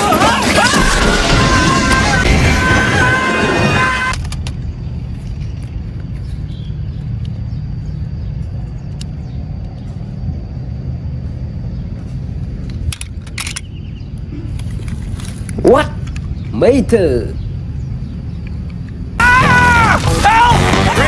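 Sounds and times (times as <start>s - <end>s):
cartoon rocket blast: 0.0s - 4.1s, 19.4s - 21.0s
low outdoor rumble: 0.0s - 21.0s.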